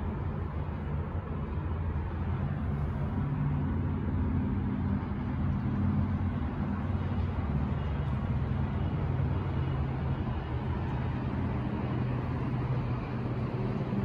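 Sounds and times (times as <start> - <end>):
city rumble: 0.0 - 14.0.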